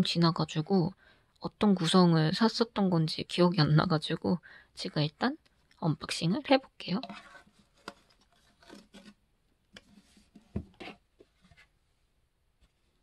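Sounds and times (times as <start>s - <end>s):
cardboard box rustling and scraping: 7.0s - 9.2s, 9.8s - 11.8s.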